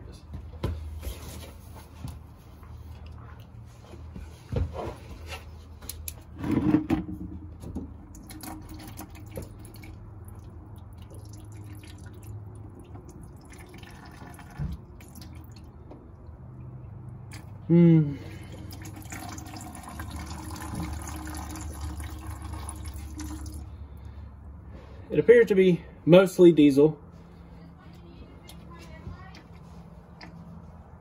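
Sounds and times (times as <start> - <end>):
fuel dripping into plastic bucket: 7.2 - 17.6, 18.3 - 24.2.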